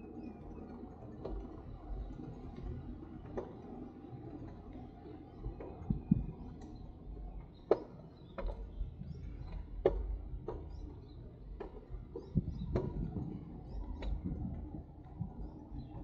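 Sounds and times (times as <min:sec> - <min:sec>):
bicycle clicks and knocks: 0:07.7 - 0:15.2.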